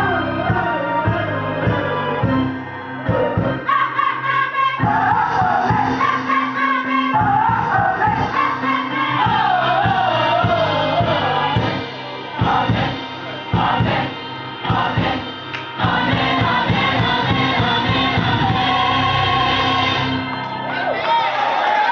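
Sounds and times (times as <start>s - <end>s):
electronic keyboard: 0.0s - 21.9s
gospel choir singing: 0.0s - 21.9s.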